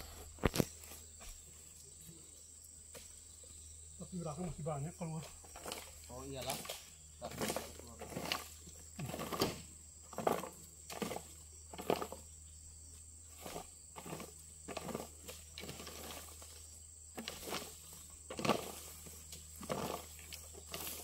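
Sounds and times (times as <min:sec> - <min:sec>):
hoe scraping over dirt: 0:04.5 - 0:12.4, 0:13.2 - 0:21.0.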